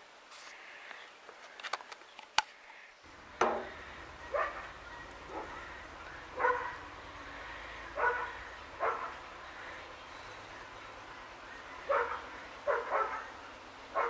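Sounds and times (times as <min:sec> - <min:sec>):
dog barking: 0:03.5 - 0:09.7, 0:10.6 - 0:14.0.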